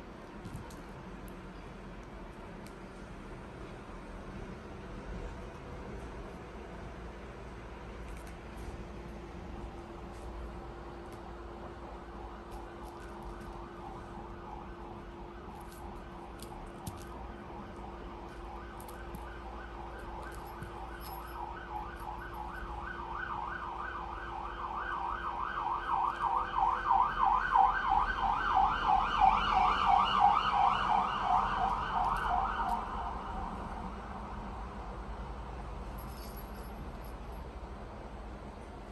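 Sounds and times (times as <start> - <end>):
emergency siren warbling: 12.3 - 16.0, 17.3 - 33.5.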